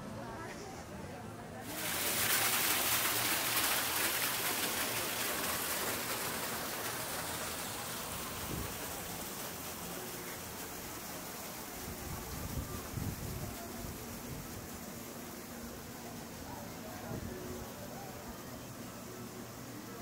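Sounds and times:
water splashing onto rocks: 1.6 - 15.6.

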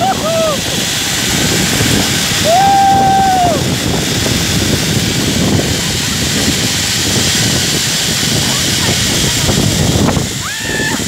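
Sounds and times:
person crying out: 0.0 - 0.6, 2.4 - 3.6, 10.4 - 11.0
wind on microphone: 0.0 - 11.0.

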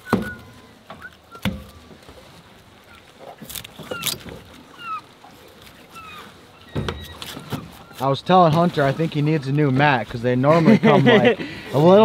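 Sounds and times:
short high bird calls: 0.0 - 2.2, 2.8 - 8.1.

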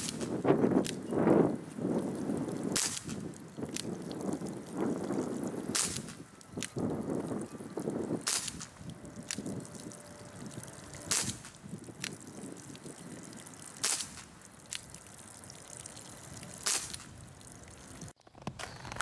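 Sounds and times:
water trickling and dripping: 0.0 - 18.2
air pistol shots: 2.8 - 3.2, 5.7 - 6.2, 13.8 - 14.3.

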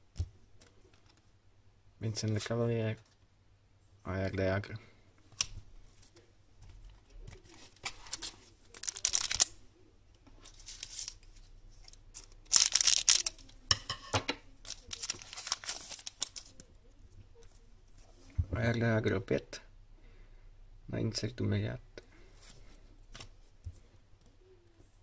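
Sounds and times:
wrapper tearing and crinkling: 7.8 - 9.6, 10.5 - 13.7, 14.6 - 16.6.

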